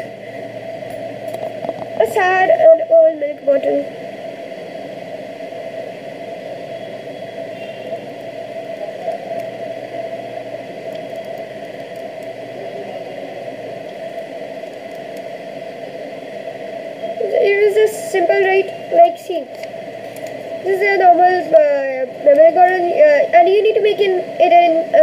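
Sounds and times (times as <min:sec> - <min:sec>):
background hiss and hum: 0:00.0 - 0:25.0
paper pages ticking: 0:10.8 - 0:12.4.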